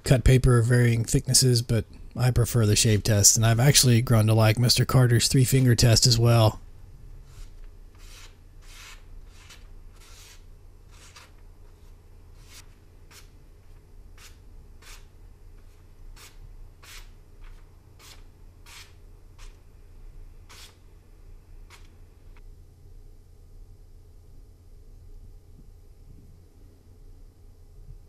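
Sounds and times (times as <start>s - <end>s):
steady low hum: 0.0s - 28.0s
knife slicing paper: 7.3s - 13.3s.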